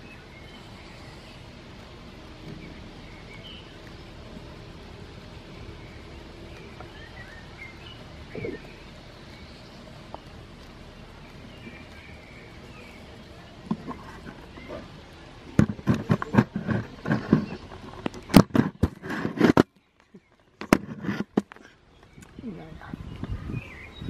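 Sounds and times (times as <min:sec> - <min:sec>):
camera handling knocks and rustling: 0:15.6 - 0:19.7, 0:20.6 - 0:21.6.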